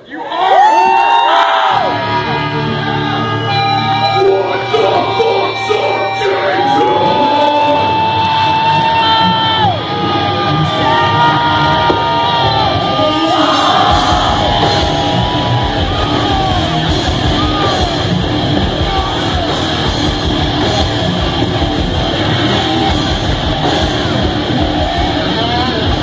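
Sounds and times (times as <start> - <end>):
distorted electric guitars: 1.7 - 26.0
heavy metal band playing live: 1.7 - 26.0.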